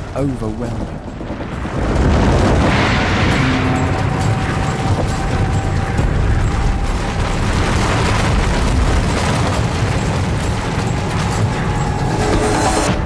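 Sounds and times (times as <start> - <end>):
deep rumble of collapsing bridge: 0.0 - 13.0.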